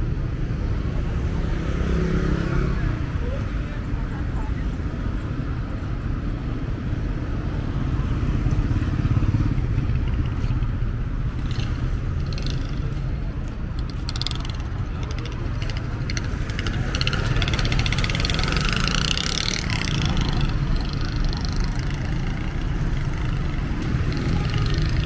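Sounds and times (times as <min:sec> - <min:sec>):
passing vehicle engines rumbling: 0:00.0 - 0:25.0
rattling clatter: 0:11.3 - 0:25.0.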